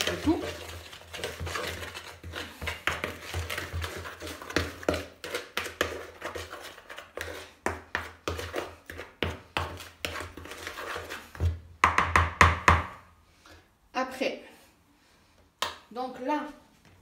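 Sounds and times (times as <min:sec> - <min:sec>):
cutlery scraping plastic bowl: 0:00.0 - 0:11.6.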